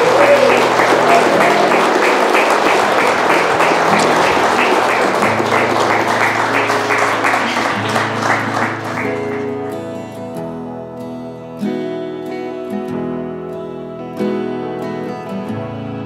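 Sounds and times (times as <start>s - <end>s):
crowd applauding: 0.0s - 9.9s
soft music: 0.0s - 16.0s.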